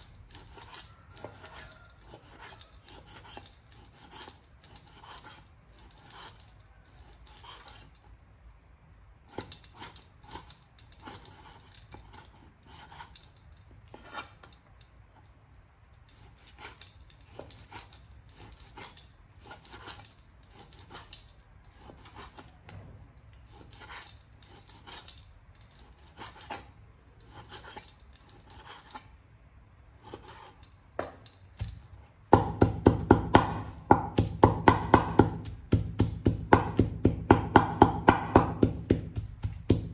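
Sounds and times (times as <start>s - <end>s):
cleaver chopping meat on wood: 32.2s - 39.9s.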